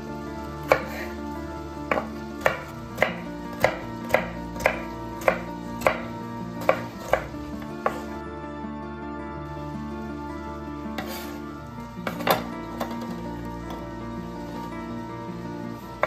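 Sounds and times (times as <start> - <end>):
knife chopping on cutting board: 0.7 - 1.1, 1.9 - 8.2, 11.0 - 11.4.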